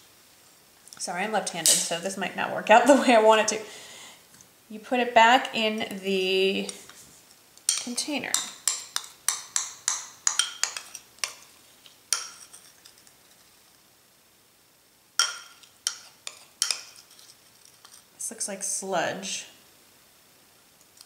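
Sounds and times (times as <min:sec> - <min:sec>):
metal spoon clinking on glass bowl: 0:07.7 - 0:11.4.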